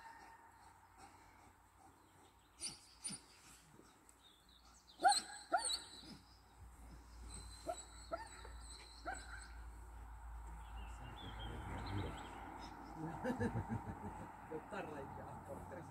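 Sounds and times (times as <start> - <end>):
dog barking: 5.0 - 5.9.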